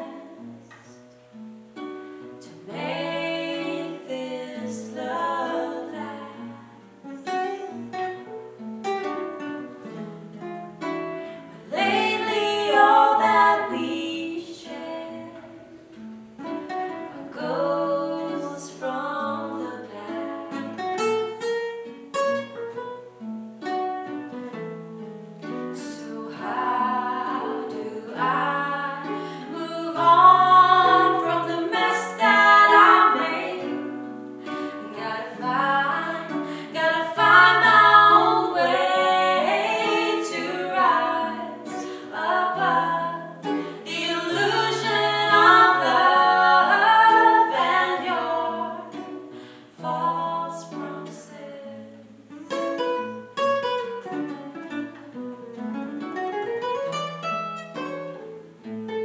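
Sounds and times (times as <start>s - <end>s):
women singing in harmony: 0.0s - 0.7s, 2.4s - 7.8s, 11.5s - 15.7s, 17.0s - 21.0s, 25.7s - 52.8s
acoustic guitars: 0.0s - 59.0s.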